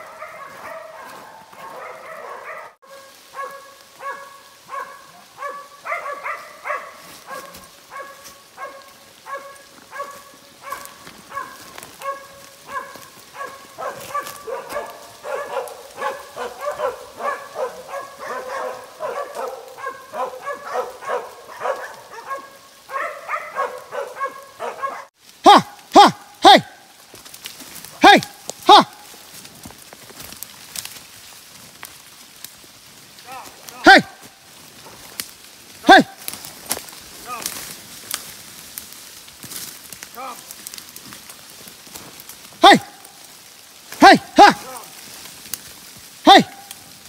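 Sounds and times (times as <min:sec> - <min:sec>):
dogs barking: 0:00.0 - 0:26.9, 0:27.9 - 0:29.2, 0:33.3 - 0:36.6, 0:42.6 - 0:43.3, 0:43.9 - 0:44.9.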